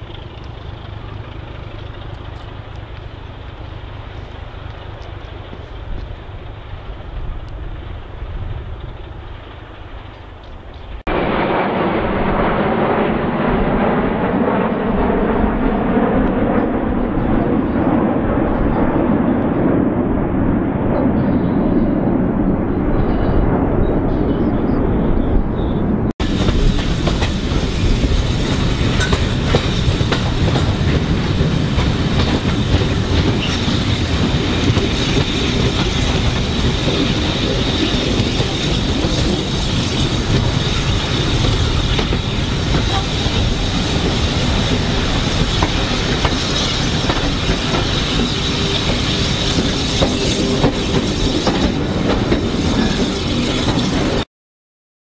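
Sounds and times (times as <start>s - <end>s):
wheels clattering on rails: 0.0s - 11.0s, 26.2s - 54.2s
diesel locomotive engine: 0.0s - 54.3s.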